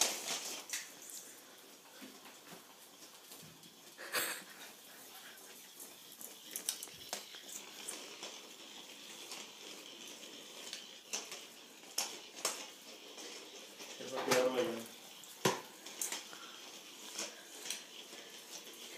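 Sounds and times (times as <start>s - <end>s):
toy ball whirring: 0.0s - 18.9s
ball clicking on tile floor: 5.1s - 18.9s.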